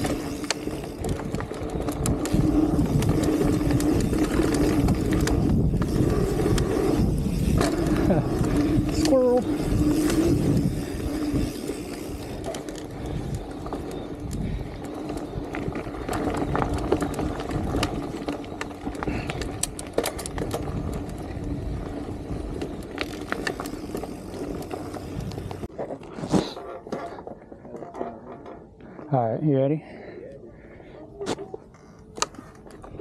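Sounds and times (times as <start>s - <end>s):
wind on microphone: 0.0s - 18.1s
bike rattling and knocking: 0.0s - 26.1s
bike tyres rolling over dirt: 0.0s - 29.1s.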